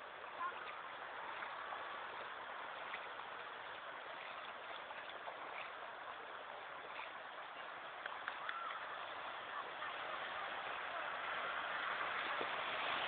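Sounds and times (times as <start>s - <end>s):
faint splashes from wading: 0.0s - 13.0s
sea surf over shallow water: 0.0s - 13.0s.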